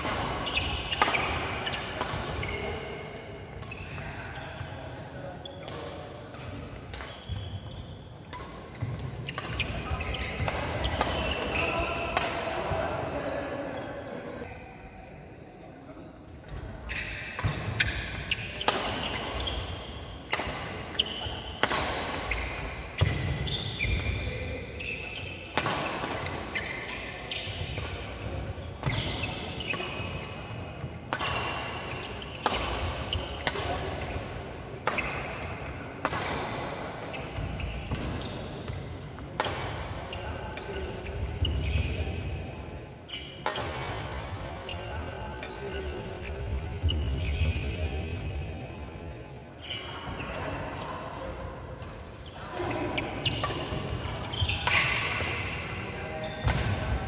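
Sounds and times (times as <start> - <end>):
rackets hitting shuttlecock: 0.0 - 2.7, 8.2 - 12.8, 17.2 - 24.7, 25.4 - 40.0, 43.4 - 44.3, 51.8 - 55.6, 56.4 - 57.0
sports shoes squeaking: 0.4 - 4.7, 5.4 - 12.1, 16.8 - 20.0, 20.9 - 27.9, 28.7 - 30.4, 31.2 - 35.8, 37.1 - 38.9, 40.1 - 43.5, 44.6 - 48.8, 49.6 - 50.9, 51.8 - 56.7.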